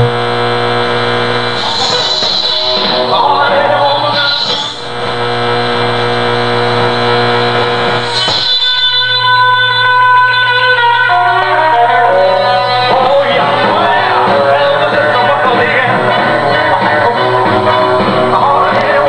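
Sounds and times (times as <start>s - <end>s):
radio tuning noise and whistles: 0.0s - 11.2s
music through a radio: 0.0s - 19.0s.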